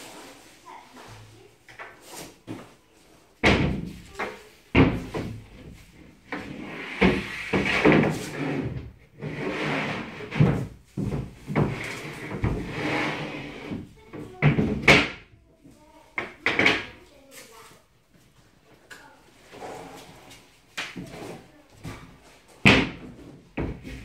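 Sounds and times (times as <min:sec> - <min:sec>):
boards knocking against frame: 0:03.4 - 0:04.0, 0:04.7 - 0:05.8, 0:22.6 - 0:24.0
board scraping and sliding: 0:06.3 - 0:10.7, 0:11.5 - 0:13.8, 0:19.5 - 0:20.4.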